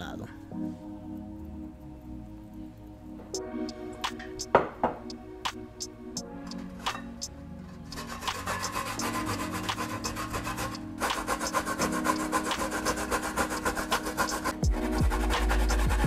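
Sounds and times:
coconut grating on metal grater: 0:07.9 - 0:16.0.

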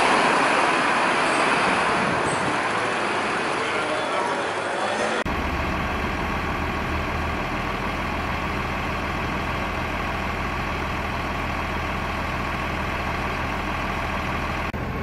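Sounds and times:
diesel engine idling: 0:00.0 - 0:15.0.

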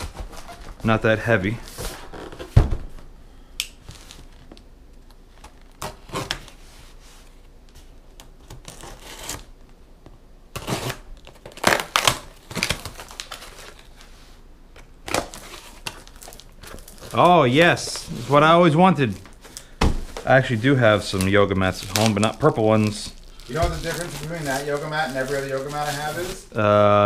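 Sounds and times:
packing tape tearing: 0:08.2 - 0:09.5, 0:10.5 - 0:14.0, 0:15.0 - 0:17.3, 0:21.2 - 0:26.5.

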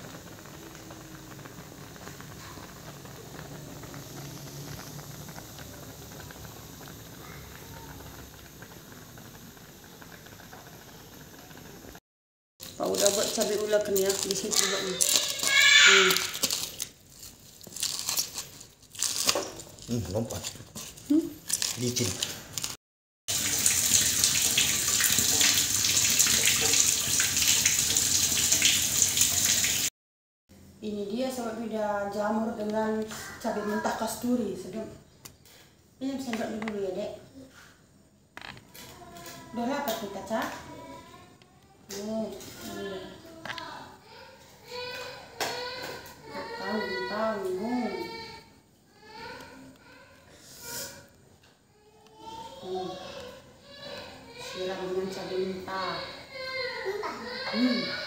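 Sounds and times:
pot boiling and bubbling: 0:00.0 - 0:12.0, 0:12.6 - 0:29.9, 0:30.8 - 0:44.0
water rushing with crackling ticks: 0:00.0 - 0:12.0.

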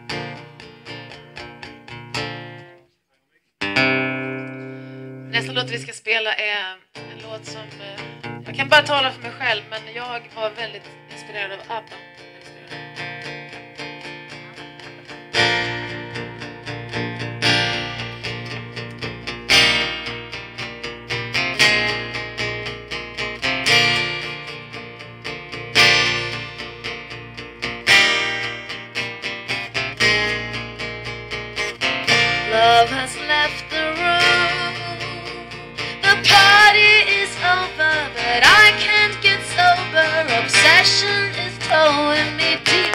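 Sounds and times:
strummed acoustic guitar: 0:00.0 - 0:02.8, 0:03.6 - 0:06.0, 0:07.0 - 0:42.9
woman singing: 0:05.3 - 0:12.0, 0:32.3 - 0:42.9.

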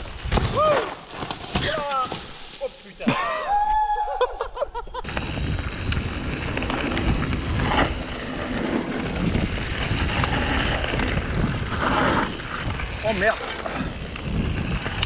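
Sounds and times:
tyre noise on dirt: 0:00.0 - 0:03.4, 0:05.0 - 0:15.0
bike rattling over bumps: 0:05.0 - 0:15.0
wind on microphone: 0:05.0 - 0:15.0.

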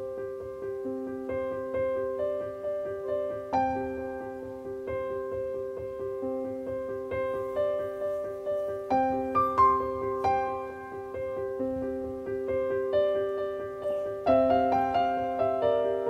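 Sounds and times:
gentle piano music: 0:00.0 - 0:16.0.

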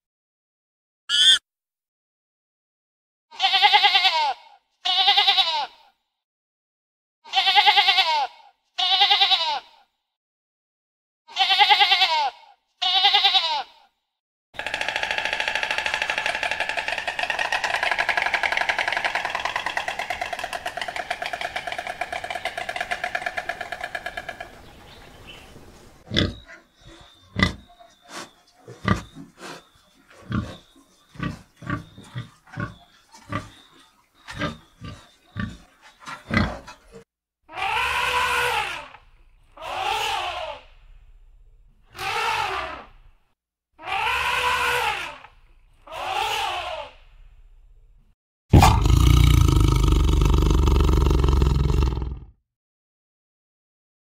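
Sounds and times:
short pitched animal calls: 0:01.1 - 0:01.4
sharp clicks and knocks: 0:14.6 - 0:24.6
long continuous animal cry: 0:14.6 - 0:25.2, 0:26.0 - 0:40.8, 0:41.9 - 0:43.0, 0:43.8 - 0:47.1.

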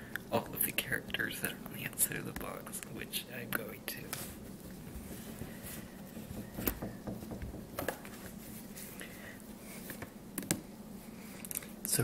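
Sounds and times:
soft handling rustle: 0:03.6 - 0:06.4, 0:07.9 - 0:10.2
fingers tapping on a plastic box: 0:06.1 - 0:08.0.

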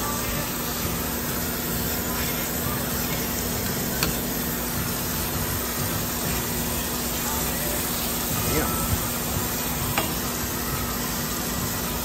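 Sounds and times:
coolant spraying and splashing: 0:00.0 - 0:12.0
grinder humming: 0:00.0 - 0:12.0.

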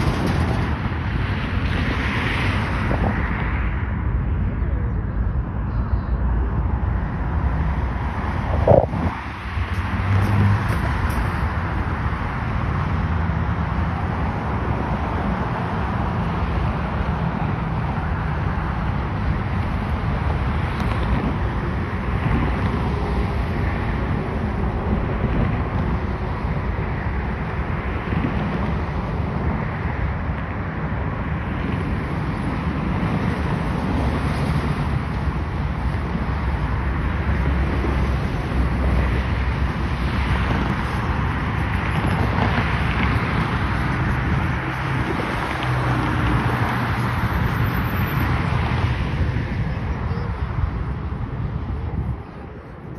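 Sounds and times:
road traffic noise: 0:00.0 - 0:52.9
wind buffeting microphone: 0:00.0 - 0:52.9.

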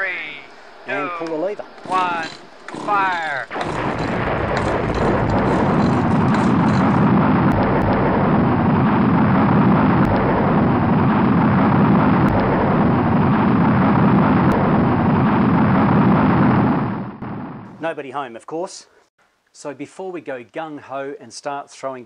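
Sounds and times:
rocket explosion roar: 0:02.0 - 0:17.8.

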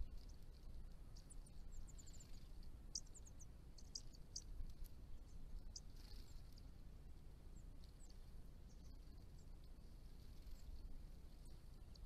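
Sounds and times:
bird chips: 0:00.0 - 0:06.8
faint low rumble: 0:00.0 - 0:12.0.

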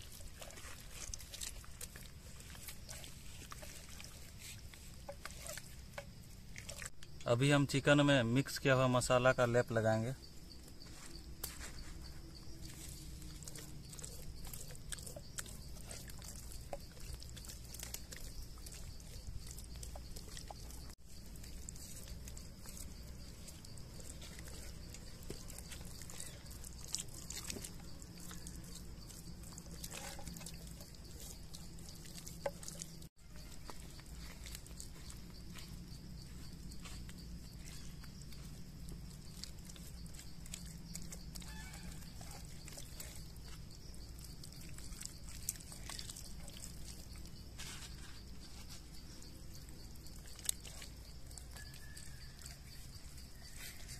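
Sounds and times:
hands squishing paste into chicken: 0:12.6 - 0:36.4, 0:39.3 - 0:47.6.

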